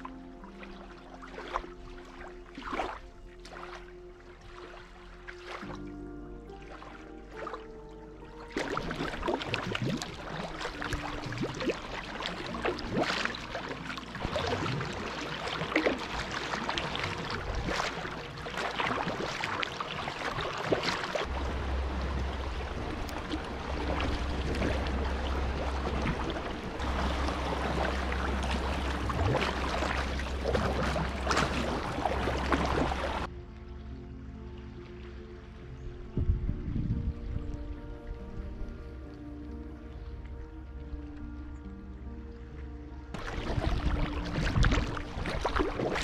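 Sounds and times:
water slapping against hull: 0.0s - 33.3s, 43.1s - 46.0s
paddle splashing in water: 0.0s - 33.6s, 43.1s - 46.0s
low steady rumble: 0.0s - 46.0s.

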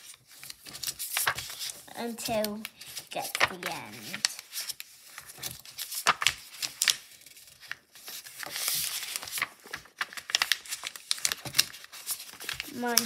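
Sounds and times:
paper folding crinkles and clicks: 0.0s - 13.0s
paper rustling: 0.0s - 13.0s.

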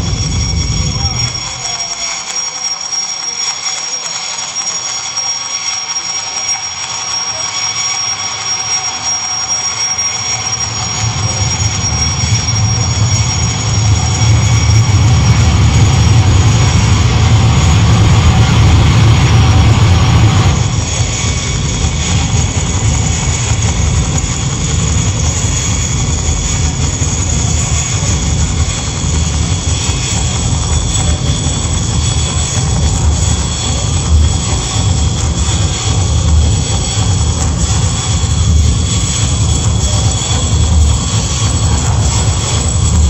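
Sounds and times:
deep rumbling low end: 0.0s - 1.5s, 10.7s - 43.0s
electronic noise drone music: 0.0s - 43.0s
high whistling tones: 0.0s - 43.0s.

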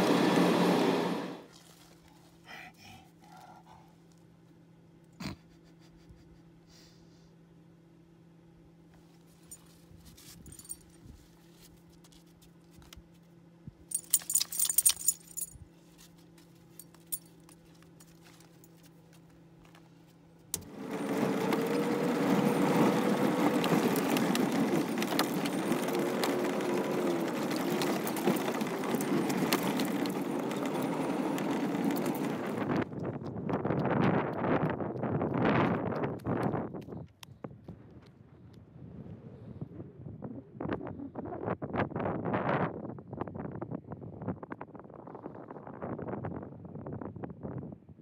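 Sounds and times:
vehicle driving on dirt road: 0.0s - 2.4s, 8.9s - 41.7s
metallic jingle: 13.9s - 15.6s.

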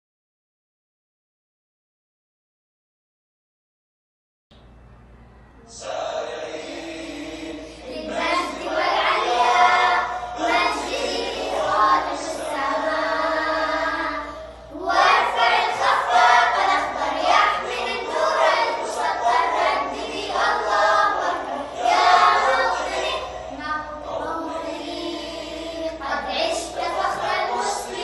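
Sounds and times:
girls singing together: 5.7s - 28.0s.

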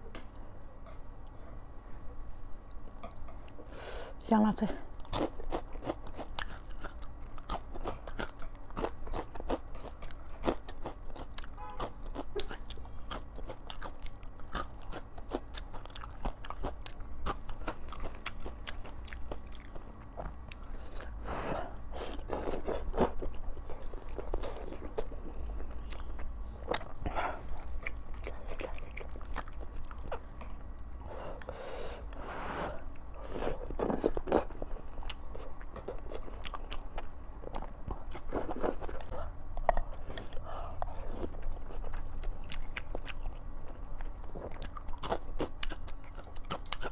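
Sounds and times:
chewing crispy food: 5.0s - 31.1s, 32.9s - 46.9s.

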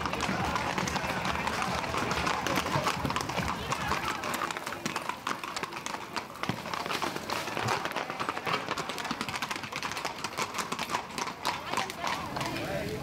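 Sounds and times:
horse hooves galloping: 0.0s - 13.0s.

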